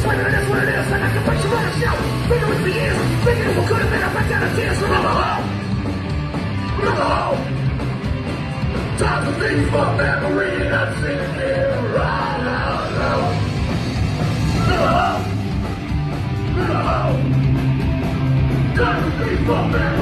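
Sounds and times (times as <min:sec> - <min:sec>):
bass guitar: 0:00.0 - 0:20.0
distorted electric guitars: 0:00.0 - 0:20.0
drums: 0:00.0 - 0:20.0.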